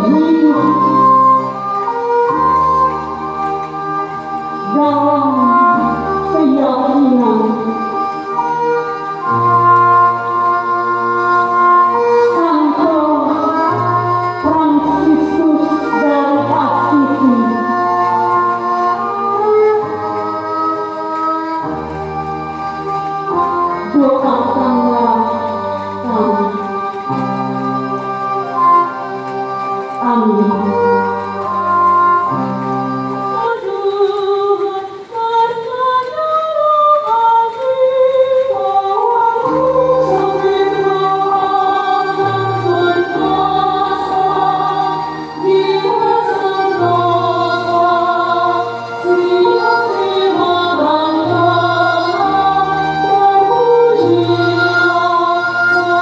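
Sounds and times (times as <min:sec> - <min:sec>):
violin playing: 0:00.0 - 0:35.7, 0:36.5 - 0:56.0
woman singing through pa: 0:12.3 - 0:18.1, 0:33.3 - 0:56.0.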